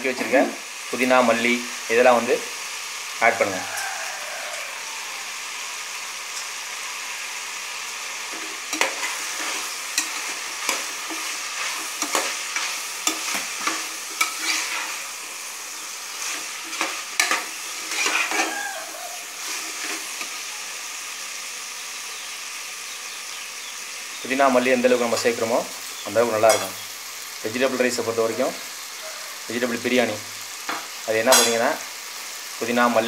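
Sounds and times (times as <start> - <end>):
vegetables sizzling in oil: 0.0 - 33.0
ladle scraping a pot: 8.3 - 15.0, 16.2 - 18.6.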